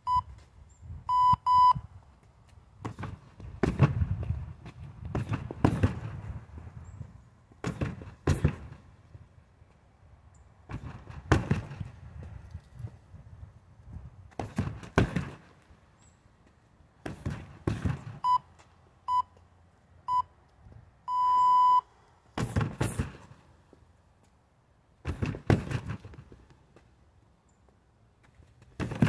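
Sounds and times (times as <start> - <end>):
interval timer beeps: 1.1 - 1.8, 21.1 - 21.8
strikes thudding on heavy bag: 22.4 - 23.3, 25.1 - 26.2, 28.8 - 29.0.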